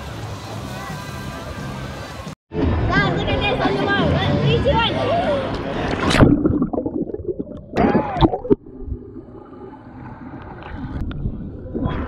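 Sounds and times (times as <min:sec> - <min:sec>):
water gurgle: 0:05.6 - 0:12.0
muffled underwater water rumble: 0:05.7 - 0:12.0.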